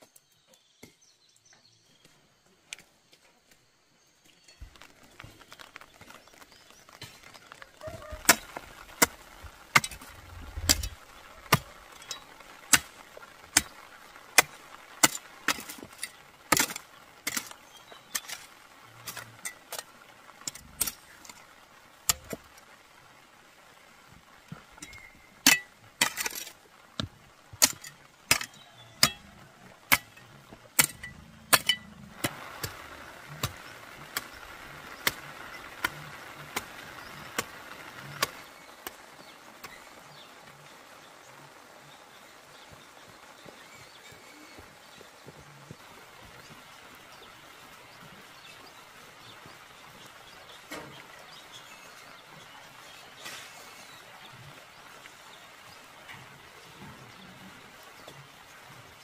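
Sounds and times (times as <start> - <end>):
metal hoe striking stony soil: 6.8 - 22.6, 24.5 - 40.3.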